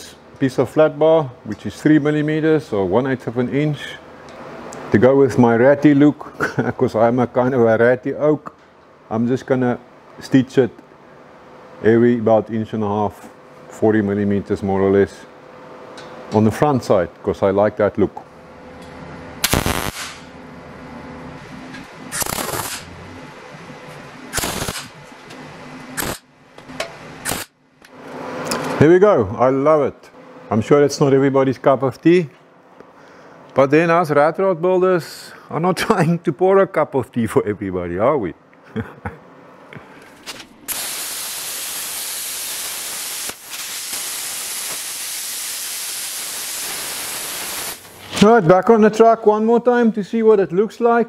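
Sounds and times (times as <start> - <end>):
steady low hum: 0.0 - 44.8
welding arc bursts: 19.4 - 20.3, 22.1 - 22.9, 24.3 - 25.0, 26.0 - 26.3, 27.2 - 27.6, 40.7 - 48.1
plasma cutter hissing: 19.5 - 20.2, 22.1 - 22.9, 24.3 - 25.0, 40.7 - 48.1.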